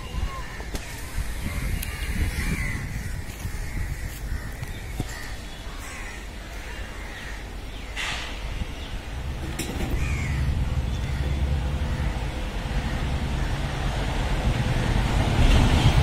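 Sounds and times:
crows cawing: 0.3s - 8.0s, 10.0s - 13.7s
steady low rumble: 7.9s - 16.0s.

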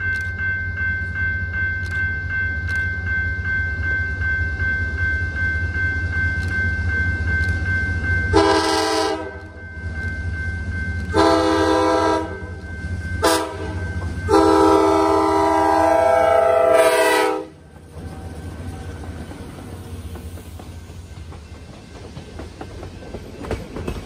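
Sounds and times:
train rumbling: 0.0s - 24.0s
train air horn blasts: 8.4s - 9.4s, 11.1s - 12.6s, 13.2s - 17.6s.

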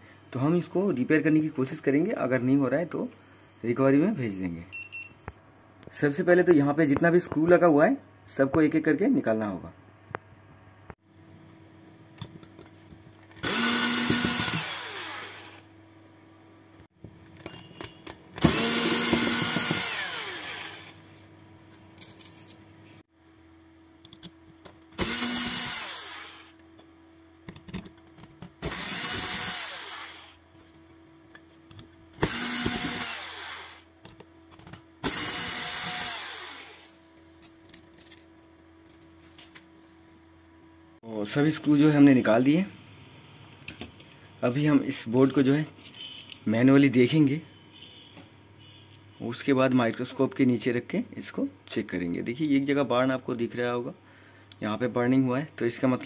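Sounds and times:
electric screwdriver running: 13.4s - 15.7s, 18.4s - 21.0s, 25.0s - 26.6s, 28.6s - 30.4s, 32.2s - 33.9s, 35.0s - 36.9s.

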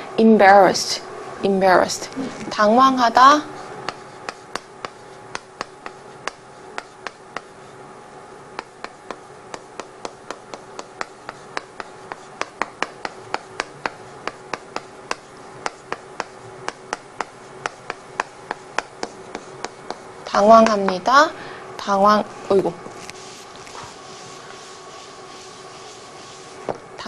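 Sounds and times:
chalk tapping on chalkboard: 3.8s - 7.6s, 8.6s - 21.0s, 23.2s - 26.8s.

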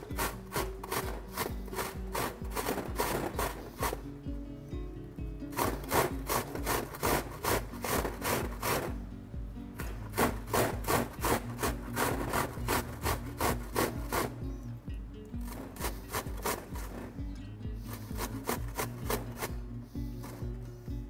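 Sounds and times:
onion grated on metal grater: 0.0s - 4.1s, 5.5s - 9.0s, 10.1s - 14.5s, 15.4s - 17.1s, 17.8s - 19.6s.

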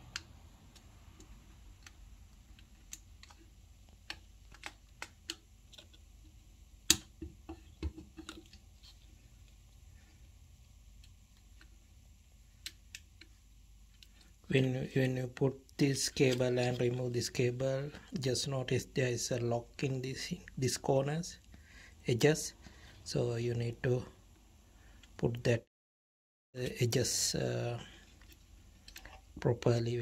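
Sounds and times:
hands handling cable connectors: 0.1s - 6.1s.

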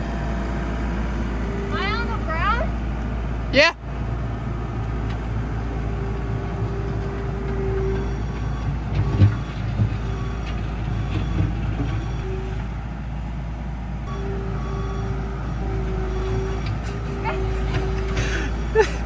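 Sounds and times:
skid steer engine running: 0.0s - 19.0s
knocks and clunks: 5.0s - 12.8s, 14.0s - 19.0s.

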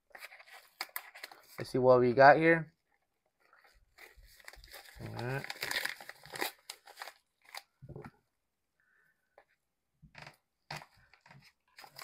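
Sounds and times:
paper mailer crinkling: 4.0s - 7.7s.

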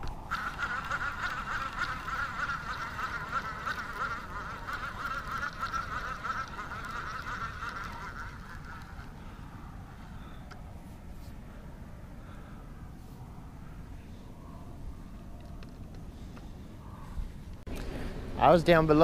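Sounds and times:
frogs calling: 0.2s - 10.6s.

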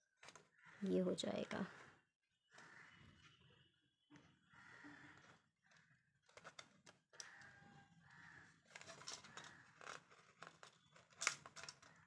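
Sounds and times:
small plastic parts clicking: 5.2s - 12.0s.

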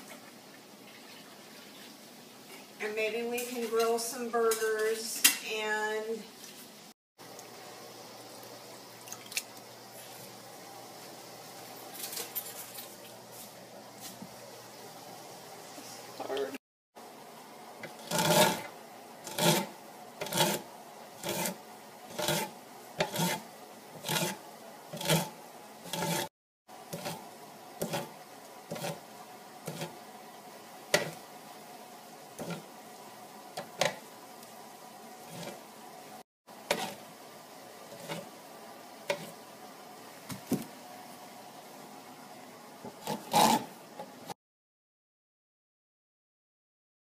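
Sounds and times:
corn cutter rasping kernels: 17.8s - 29.0s, 29.6s - 30.0s, 32.4s - 32.7s, 35.2s - 35.6s, 36.6s - 37.0s, 43.0s - 43.7s.

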